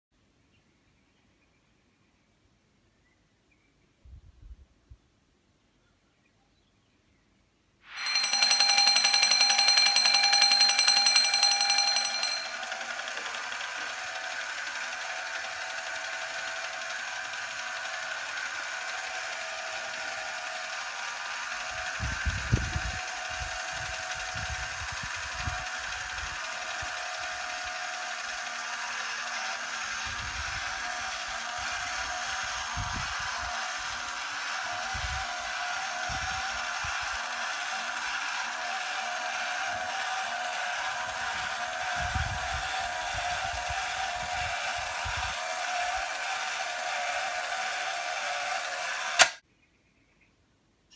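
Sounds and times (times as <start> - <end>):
alarm bell ringing: 7.9 - 18.0
toy motor and gears whirring: 7.9 - 49.4.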